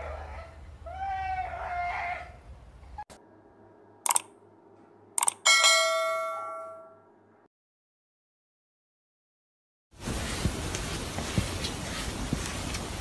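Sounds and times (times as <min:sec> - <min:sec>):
short clicks: 0:04.1 - 0:04.4, 0:05.2 - 0:05.5
notification bell chime: 0:05.5 - 0:07.0.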